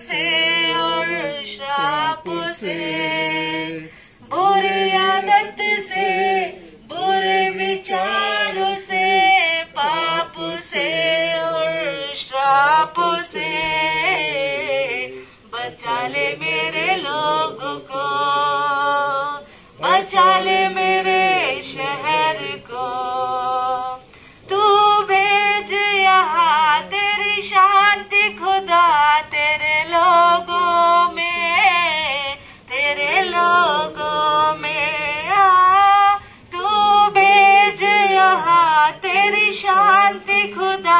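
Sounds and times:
woman singing unaccompanied: 0.0 - 40.9.

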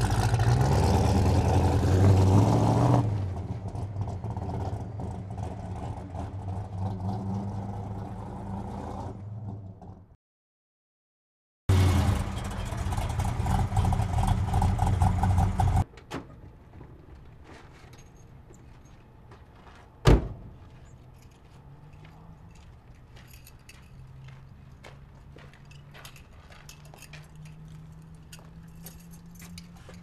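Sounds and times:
car engine running: 11.7 - 15.8
car door slam: 20.0 - 20.5.

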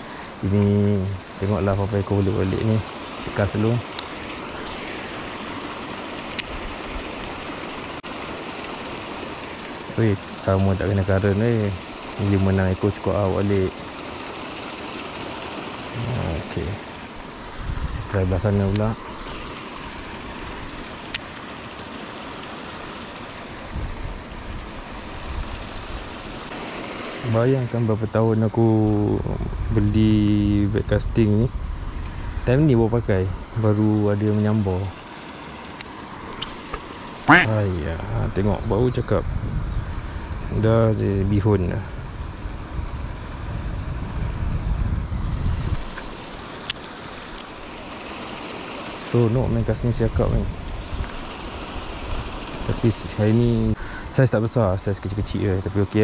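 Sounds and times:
paddlewheel splashing water: 0.0 - 17.5, 18.1 - 29.0, 33.4 - 37.4, 45.7 - 56.0
wind buffeting microphone: 17.5 - 19.0, 23.6 - 26.3, 29.0 - 33.4, 38.0 - 46.2.

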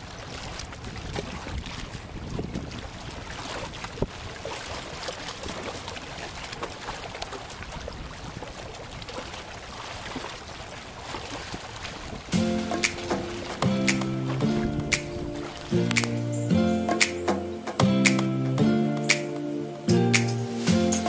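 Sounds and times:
water splashing among concrete blocks: 0.0 - 18.3
music: 12.4 - 21.0.

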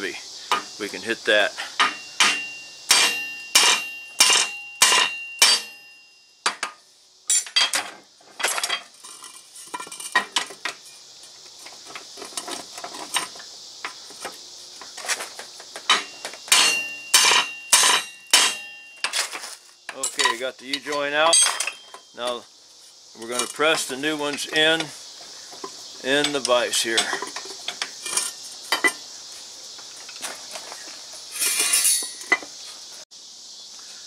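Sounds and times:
hammer striking metal: 1.8 - 6.7, 15.9 - 19.1.

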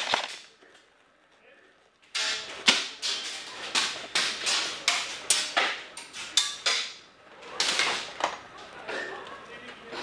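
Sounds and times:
pellets striking metal: 2.1 - 7.1.

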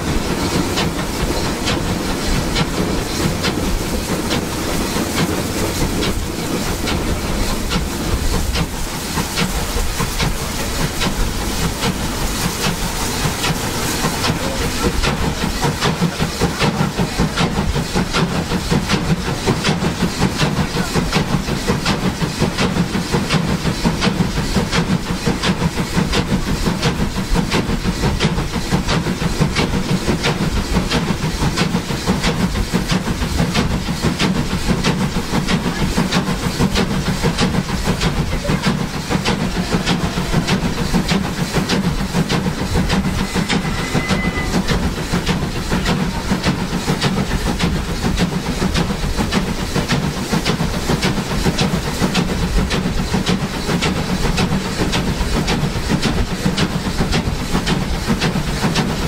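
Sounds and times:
hissing steam: 0.0 - 59.0
steam locomotive exhaust chuffing: 0.0 - 59.0
wheels running on rails: 0.0 - 59.0.

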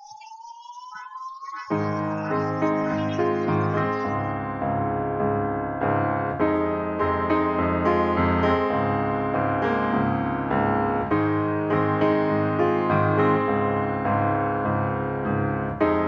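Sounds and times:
piano music: 1.7 - 16.0.

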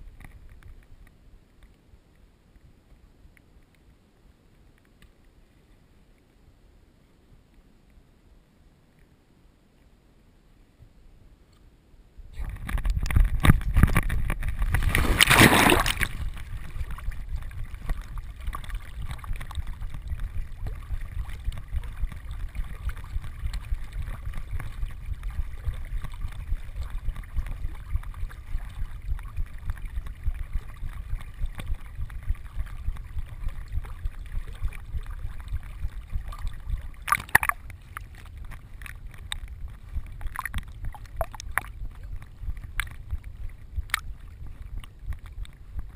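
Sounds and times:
water sloshing and gurgling: 0.0 - 1.8, 12.3 - 45.9
dog splashing into water: 14.5 - 19.7.

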